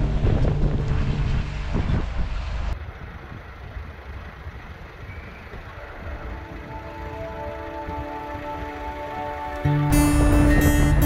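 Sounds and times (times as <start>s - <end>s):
van road and engine rumble: 0.0s - 11.0s
faint music: 5.6s - 11.0s.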